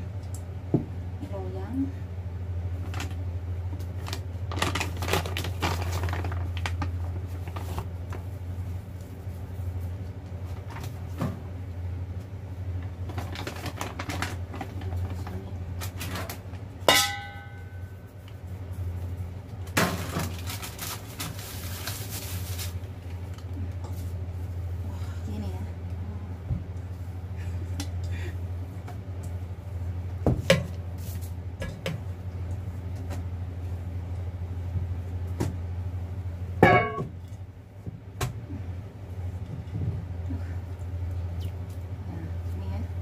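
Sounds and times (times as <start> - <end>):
clicks and paper rustling: 3.8 - 8.3, 13.0 - 16.6
metallic clank: 16.9 - 17.7.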